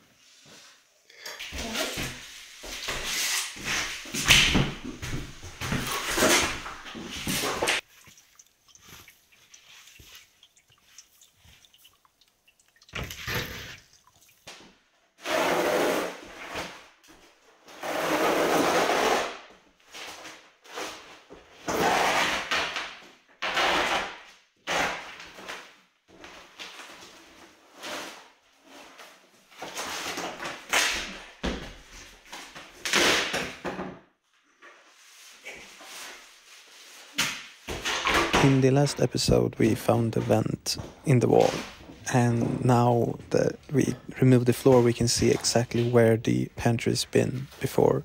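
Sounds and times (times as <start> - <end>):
boards and linoleum scraping: 1.4 - 7.8, 15.2 - 25.6.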